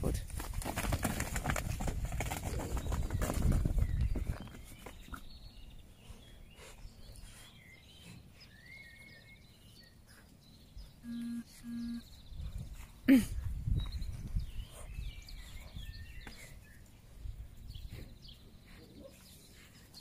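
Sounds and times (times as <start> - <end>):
small birds chirping: 0.0 - 20.0
short low tones: 11.0 - 12.2.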